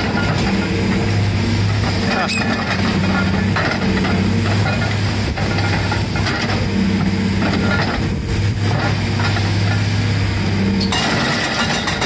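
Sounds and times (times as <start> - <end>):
excavator engine: 0.0 - 12.0
hydraulic breaker hammering concrete: 10.8 - 12.0.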